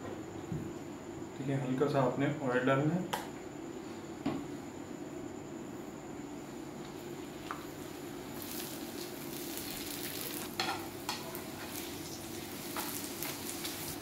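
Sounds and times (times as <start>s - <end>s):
dough sizzling in hot oil: 7.0s - 14.0s.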